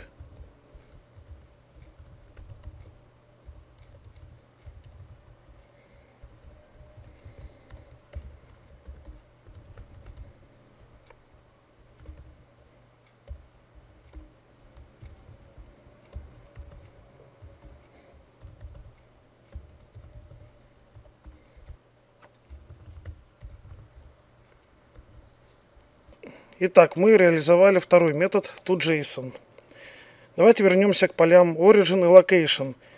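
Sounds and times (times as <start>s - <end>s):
typing on computer keyboard: 0.0s - 5.6s, 6.2s - 11.2s, 11.9s - 12.5s, 13.2s - 24.3s, 24.9s - 26.2s.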